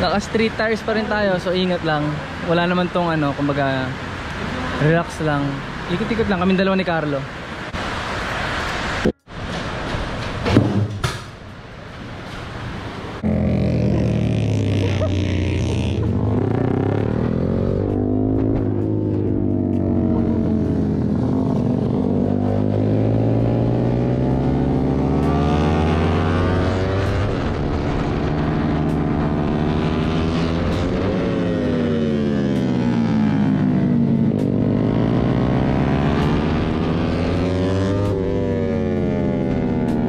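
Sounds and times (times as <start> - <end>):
second motorcycle: 13.1 - 40.0
motorcycle engine revving: 13.2 - 40.0
wind noise on microphone: 26.4 - 31.8.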